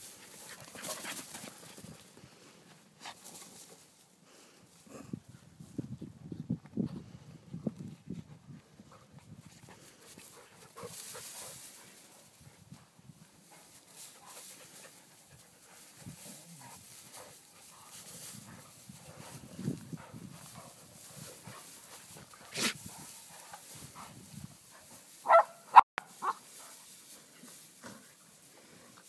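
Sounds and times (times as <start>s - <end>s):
dog yelps: 25.2s - 26.4s.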